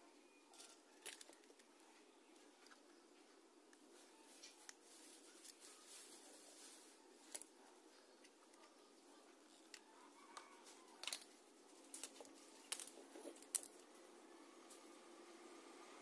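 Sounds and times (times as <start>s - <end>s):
quiet room hiss: 0.0s - 16.0s
small electronic parts clicking: 0.6s - 1.7s, 11.0s - 13.9s.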